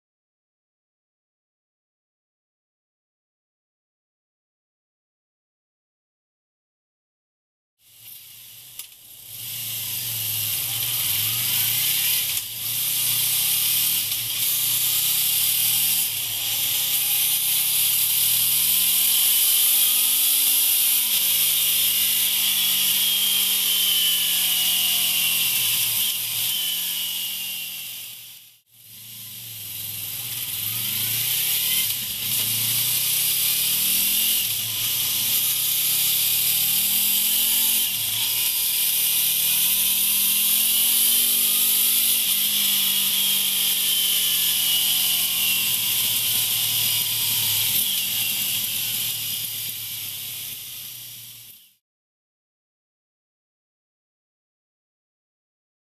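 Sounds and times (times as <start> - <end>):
motorcycle engine revving: 8.0 - 51.4.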